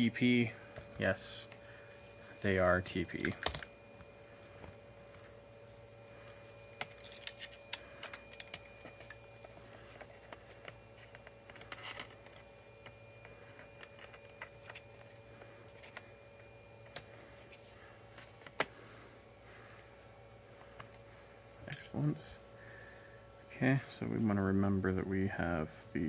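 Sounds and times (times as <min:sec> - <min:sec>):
faint steady hum: 0:00.0 - 0:26.0
plastic laptop parts clicking: 0:03.1 - 0:03.7, 0:06.8 - 0:13.0, 0:13.6 - 0:16.1.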